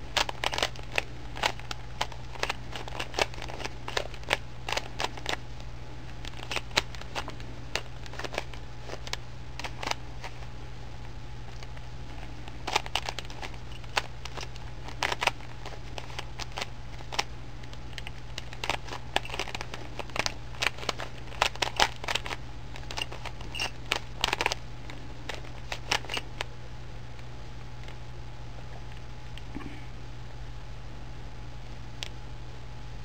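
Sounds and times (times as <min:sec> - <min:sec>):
steady low hum: 0:00.0 - 0:33.0
plastic cube clicks: 0:00.1 - 0:05.4, 0:12.6 - 0:24.6, 0:25.3 - 0:26.5.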